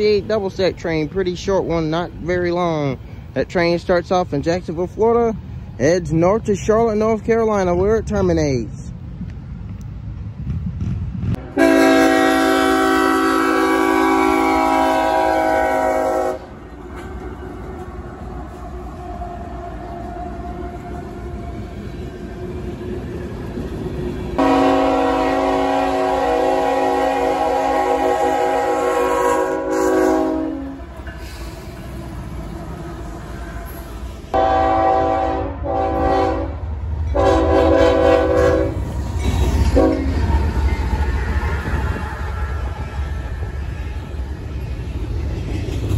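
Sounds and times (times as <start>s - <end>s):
train rumbling by: 0.0s - 45.9s
locomotive air horn blast: 11.4s - 16.6s, 24.4s - 31.7s, 33.6s - 38.9s, 39.7s - 40.2s.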